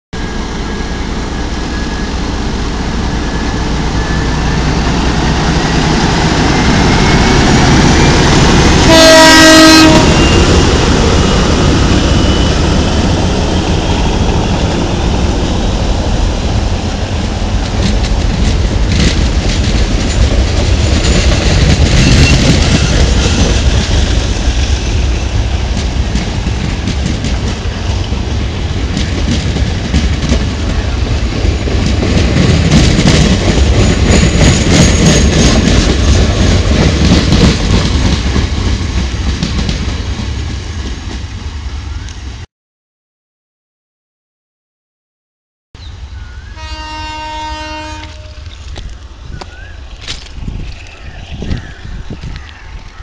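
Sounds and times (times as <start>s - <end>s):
diesel locomotive engine rumble: 0.2s - 42.5s, 45.8s - 53.0s
train horn blast: 8.2s - 10.6s, 46.5s - 48.6s
train wheels clacking over rail joints: 17.5s - 41.2s.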